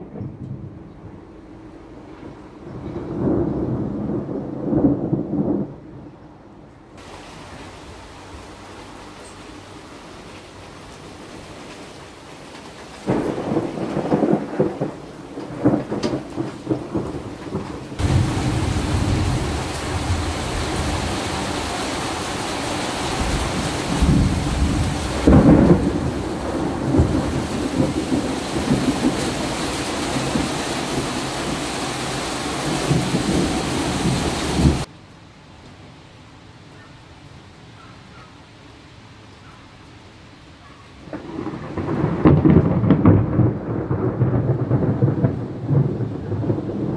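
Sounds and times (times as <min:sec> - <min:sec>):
thunder rumbling: 0:00.0 - 0:08.8, 0:12.9 - 0:34.9, 0:41.0 - 0:46.9
heavy rain on cars and asphalt: 0:01.8 - 0:06.0, 0:07.0 - 0:46.9.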